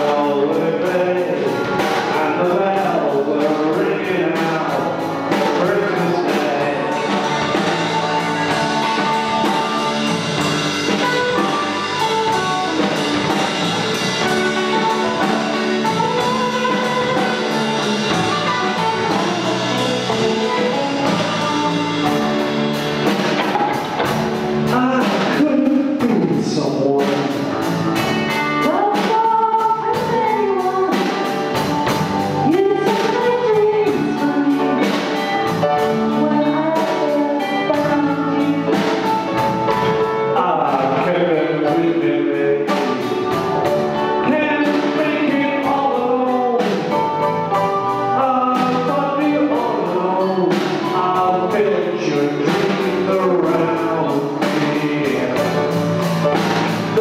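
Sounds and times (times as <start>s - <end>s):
bass guitar: 0.0s - 57.0s
drum kit: 0.0s - 57.0s
electric guitars: 0.0s - 57.0s
keyboards: 0.0s - 57.0s
woman singing: 28.4s - 31.8s, 32.4s - 39.2s.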